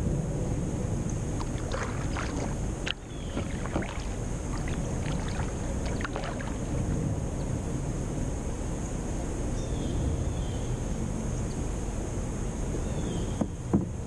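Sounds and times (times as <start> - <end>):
wind rumble on microphone: 0.0 - 14.0
paddle pulling through water: 1.2 - 7.2
water splashes and drips: 1.3 - 7.1.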